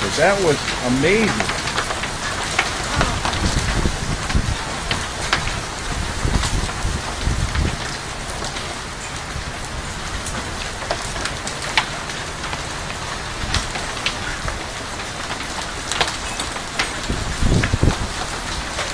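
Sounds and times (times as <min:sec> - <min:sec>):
heavy rain hissing: 0:00.0 - 0:18.9.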